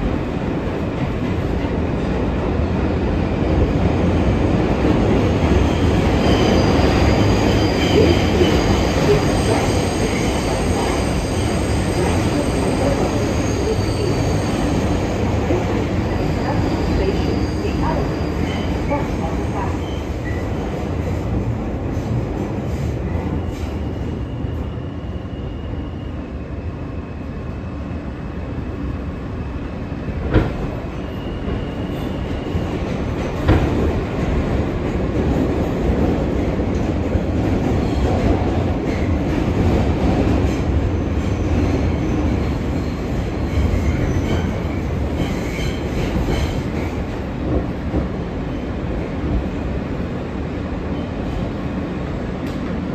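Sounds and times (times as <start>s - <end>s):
rumble of wheels on rails: 28.1s - 52.9s.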